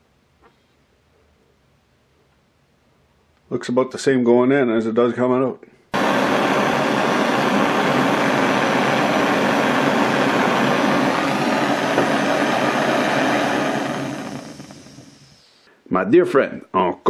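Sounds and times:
torch burning with rushing noise: 6.0s - 15.7s.

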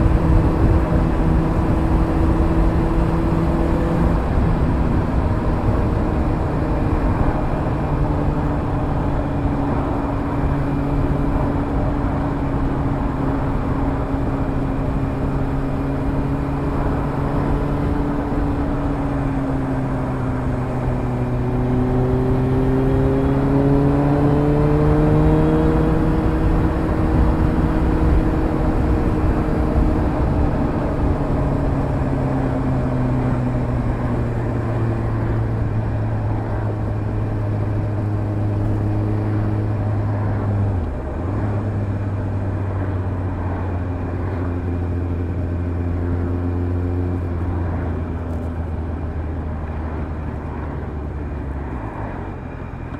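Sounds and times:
motorcycle engine cruising: 0.0s - 52.9s.

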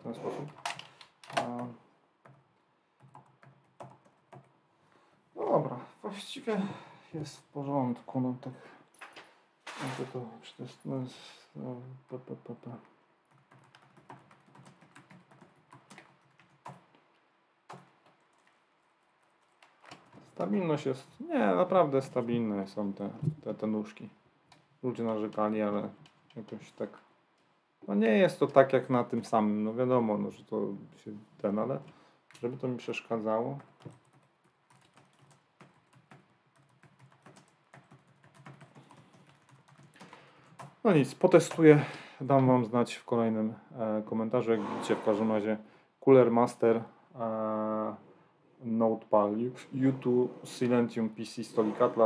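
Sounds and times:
typing on laptop keyboard: 0.5s - 1.6s, 3.0s - 4.5s, 13.3s - 17.0s, 17.7s - 20.5s, 33.6s - 40.8s.

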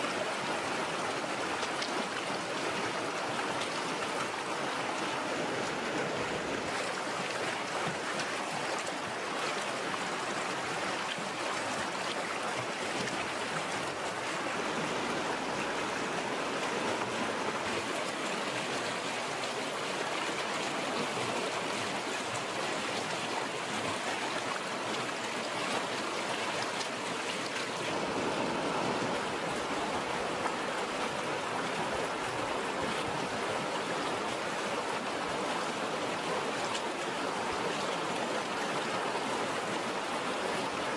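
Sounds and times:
stream rushing over rocks: 0.0s - 40.9s.

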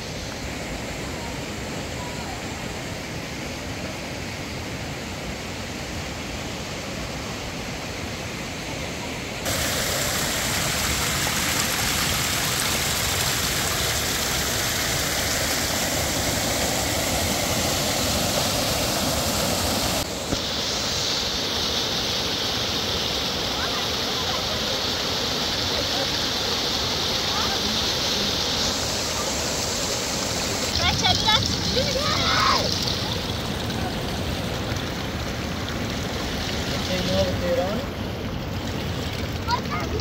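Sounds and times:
rushing mountain stream: 0.0s - 40.0s
water spilling over rocks: 9.4s - 40.0s.

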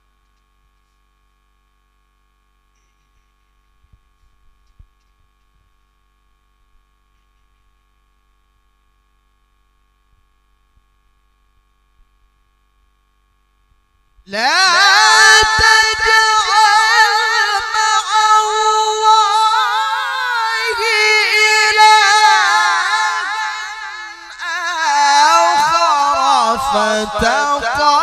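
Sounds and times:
man chanting into microphone: 14.3s - 28.0s.

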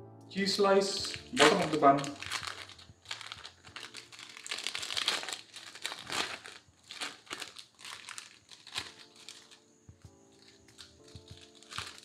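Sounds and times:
plastic film crinkling: 0.4s - 12.0s.

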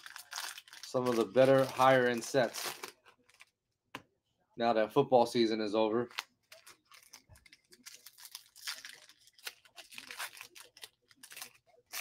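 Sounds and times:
wrapper tearing and crinkling: 0.0s - 3.4s, 6.1s - 12.0s.

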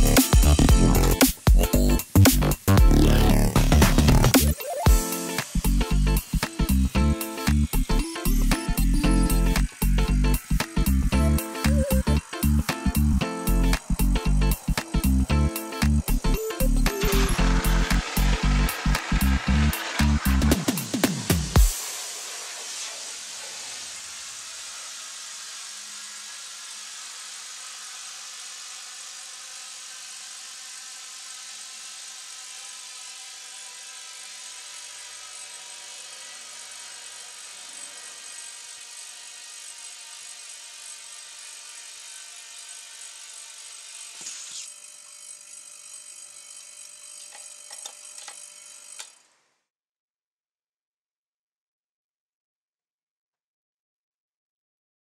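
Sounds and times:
compressed air hissing through hose: 0.0s - 28.2s, 44.2s - 44.8s.

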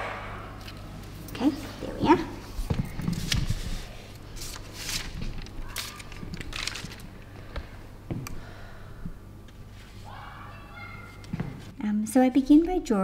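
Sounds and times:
paper rustling: 3.0s - 7.1s.

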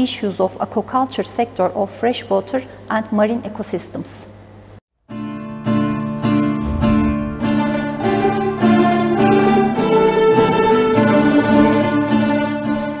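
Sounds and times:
plucked string background music: 5.1s - 13.0s.

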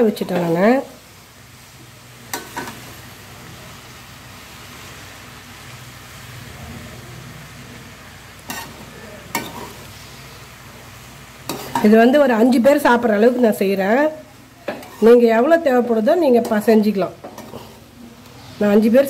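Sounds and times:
frying sizzle: 0.0s - 19.0s
spatula stirring rice in a pan: 1.6s - 3.2s, 8.4s - 10.5s, 11.3s - 12.0s, 14.6s - 15.2s.

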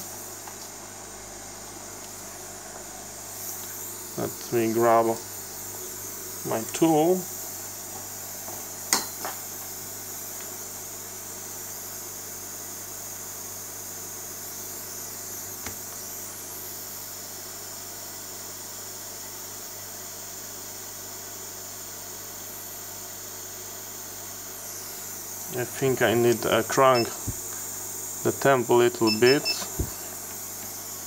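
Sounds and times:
steady hiss: 0.0s - 10.7s, 24.5s - 31.0s
low mains hum: 0.0s - 31.0s.

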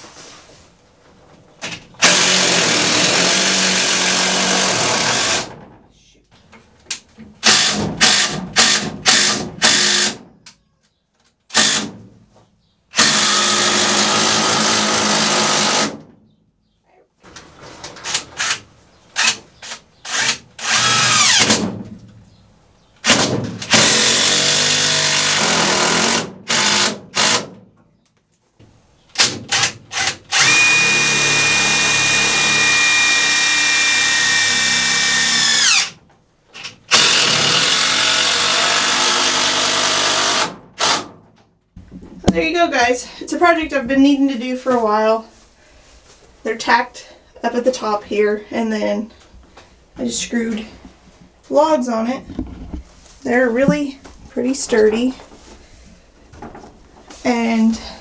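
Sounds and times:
power drill driving screws: 2.0s - 5.5s, 7.4s - 10.2s, 11.5s - 11.9s, 12.9s - 16.0s, 18.0s - 21.6s, 23.0s - 27.5s, 29.2s - 36.0s, 36.6s - 41.1s.

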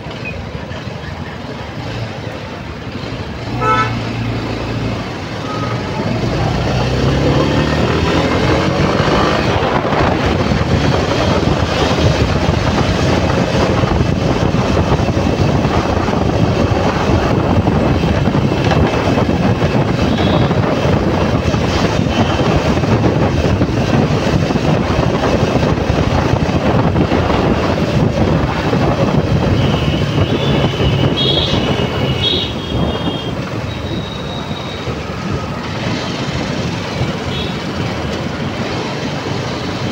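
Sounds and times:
traffic noise: 0.0s - 39.9s
wind buffeting microphone: 1.4s - 39.9s
motorcycle engine: 1.9s - 39.9s.

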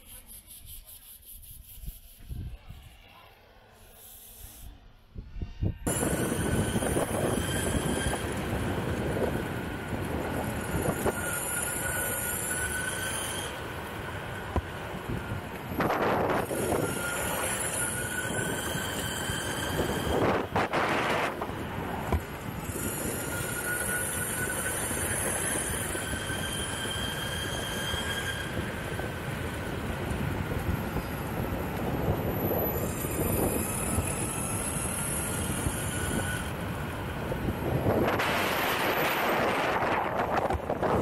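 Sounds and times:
wheels rolling on asphalt: 5.9s - 41.0s
rush of noise: 37.2s - 41.0s.

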